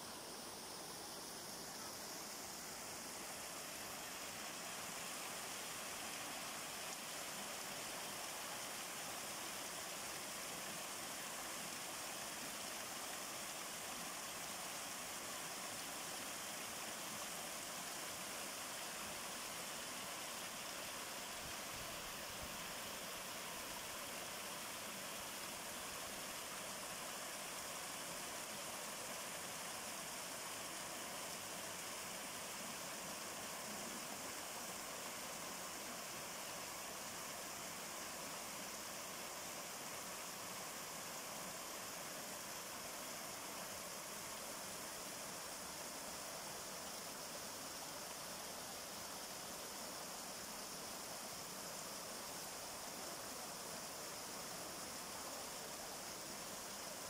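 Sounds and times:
waterfall splashing into a pond: 0.0s - 57.0s.

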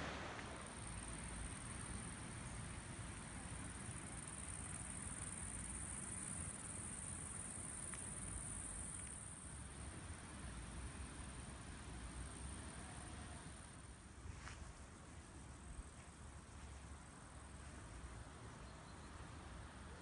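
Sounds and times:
insects trilling: 0.0s - 14.0s.

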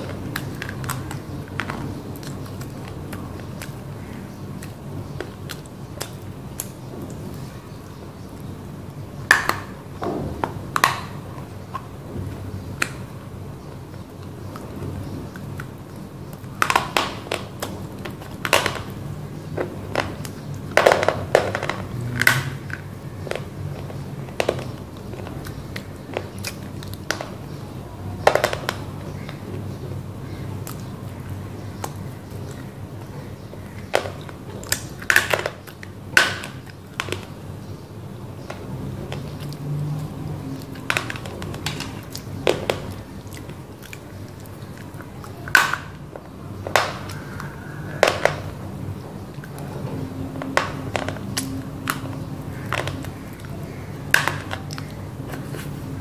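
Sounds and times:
crunching dry clay: 0.0s - 56.0s
chewing: 42.9s - 45.6s.

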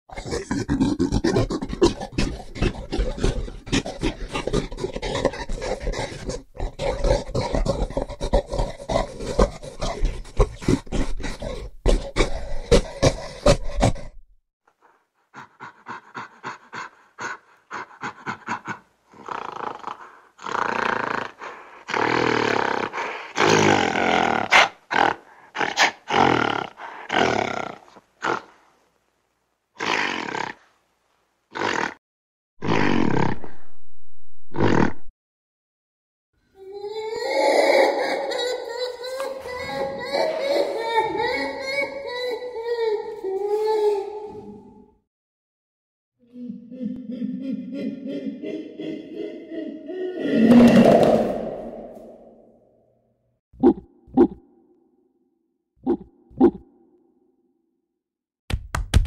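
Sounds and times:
gorilla grunts: 0.1s - 14.2s, 15.3s - 28.6s, 46.2s - 52.7s
gorilla roaring: 0.1s - 14.2s, 15.4s - 28.6s, 32.6s - 33.8s, 46.3s - 52.8s.

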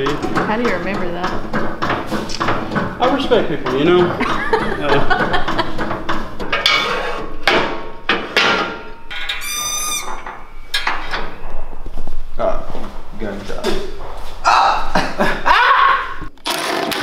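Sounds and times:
clanking pump strokes: 0.0s - 14.4s
brief high squeak: 9.3s - 10.3s.

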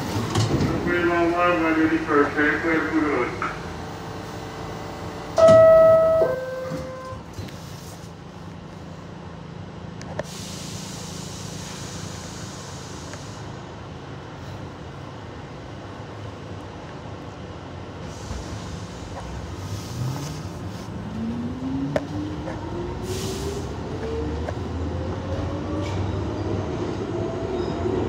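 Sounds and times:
low hum of subway car: 0.0s - 28.0s
two-tone door chime: 5.4s - 7.2s
hiss: 10.2s - 13.5s.

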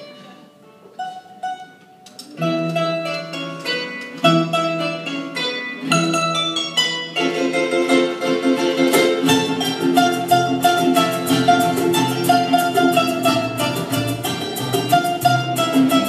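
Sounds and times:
acoustic guitar: 0.0s - 16.0s
double bass line: 2.4s - 16.0s
percussion: 8.5s - 16.0s.

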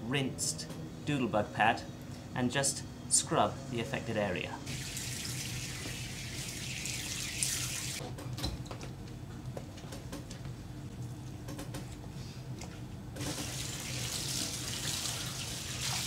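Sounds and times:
hose spraying water on deck: 4.7s - 8.0s.

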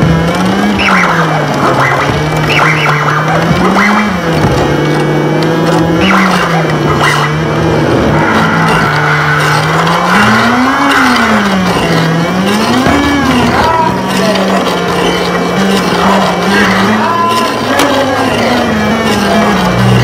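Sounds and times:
low electronic drone: 0.0s - 20.0s
squealing high tones: 5.9s - 20.0s.

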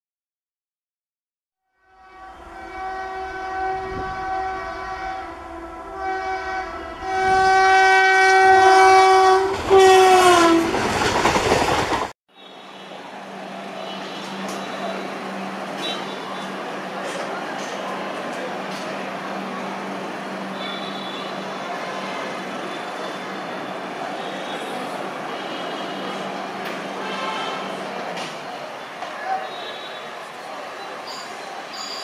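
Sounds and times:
locomotive horn blasts: 1.8s - 10.7s, 12.4s - 16.6s, 20.4s - 27.8s
train rumbling past: 1.9s - 29.4s
train rushing past: 1.9s - 29.4s
train wheel clicks: 10.7s - 12.1s.

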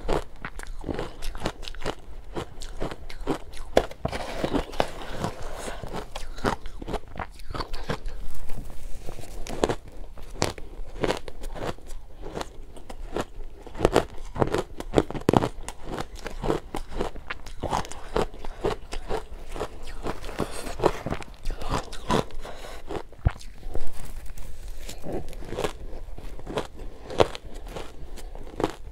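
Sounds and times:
crunching and chewing ice: 0.0s - 28.9s.

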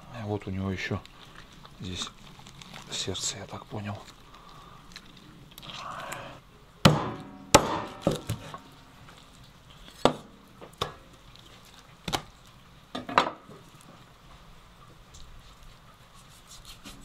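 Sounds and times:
knife chopping meat: 6.9s - 8.6s.

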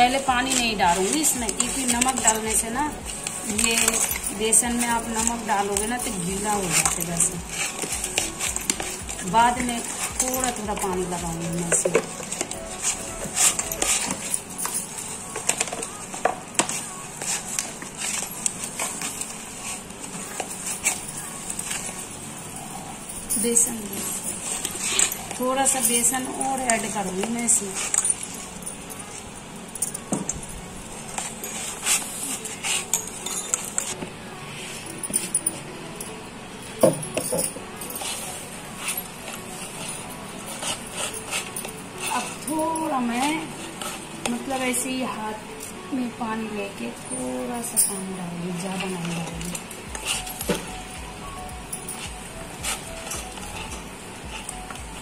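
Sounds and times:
metal clinking against bowl: 0.0s - 19.7s, 22.6s - 34.0s, 34.9s - 45.4s
batter rustling and squelching: 0.0s - 22.3s
hand mixing flour and leaves: 0.0s - 29.4s, 37.9s - 55.0s.

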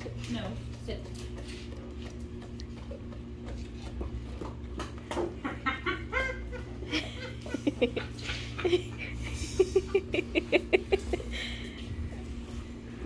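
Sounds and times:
dogs licking a hand: 0.0s - 6.3s
low room hum: 0.0s - 13.0s.

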